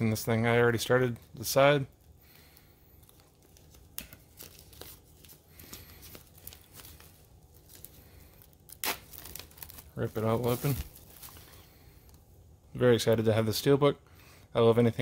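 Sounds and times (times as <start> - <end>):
plastic shrink-wrap crinkling: 2.3 - 12.3
plastic wrap tearing: 3.0 - 11.6.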